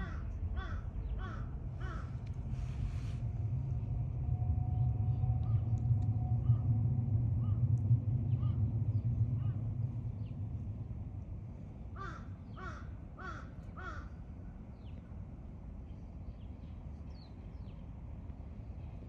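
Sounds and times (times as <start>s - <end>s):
crow cawing: 0.0s - 2.1s, 12.0s - 14.1s
low rumble: 0.0s - 13.1s.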